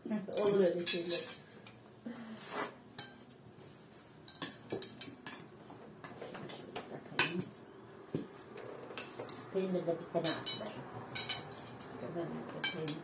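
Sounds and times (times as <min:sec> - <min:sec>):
cutlery clinking against plates: 0:00.3 - 0:01.8, 0:03.0 - 0:07.6, 0:08.9 - 0:09.5, 0:10.2 - 0:13.0.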